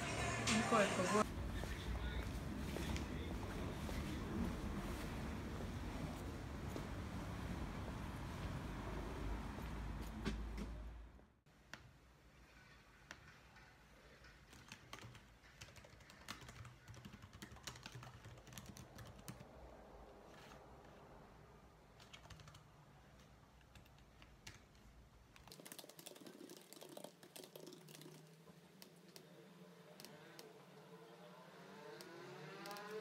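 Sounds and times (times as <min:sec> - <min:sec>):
laptop keyboard typing: 0:13.0 - 0:19.5, 0:21.9 - 0:30.5, 0:32.0 - 0:33.0.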